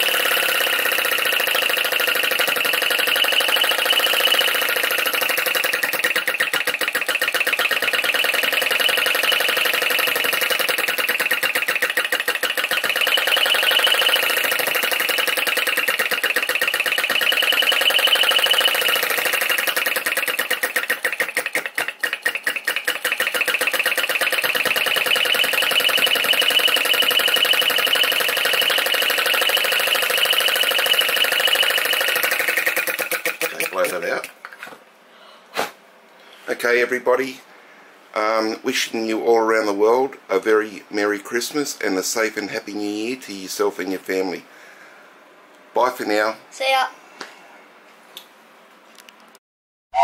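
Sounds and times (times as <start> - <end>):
small engine rapid clatter: 0.0 - 34.3.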